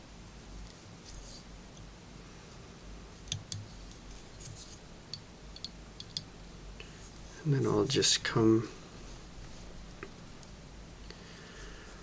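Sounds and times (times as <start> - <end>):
soft rustle: 0.4 - 1.6, 2.2 - 4.9, 8.6 - 10.0
small sharp clicks and ticks: 5.1 - 6.3.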